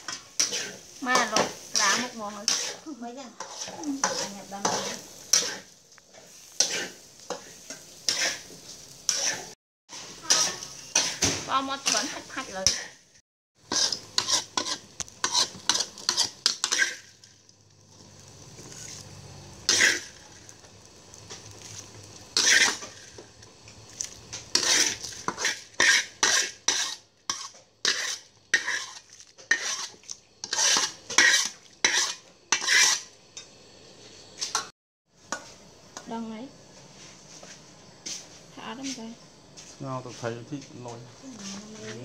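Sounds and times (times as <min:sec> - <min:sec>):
utensil scraping a pot: 0:00.0 - 0:13.0, 0:13.6 - 0:17.3, 0:18.0 - 0:20.5, 0:21.2 - 0:33.2.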